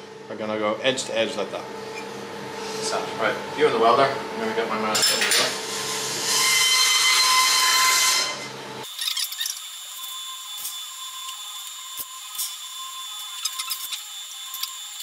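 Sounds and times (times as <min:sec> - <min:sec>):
machine whirring: 0:05.5 - 0:15.0.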